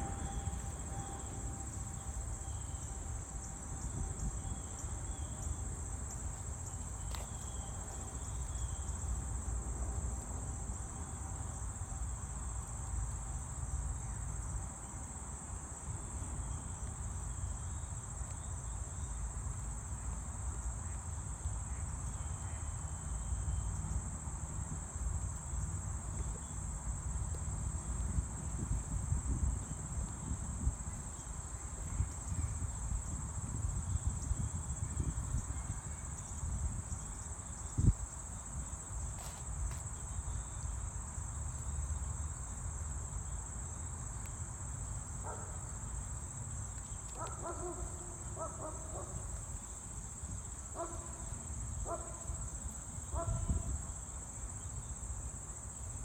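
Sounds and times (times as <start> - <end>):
insects trilling: 0.0 - 9.5, 15.6 - 56.0
wind rumble on microphone: 3.1 - 5.5, 27.2 - 40.6, 53.0 - 54.0.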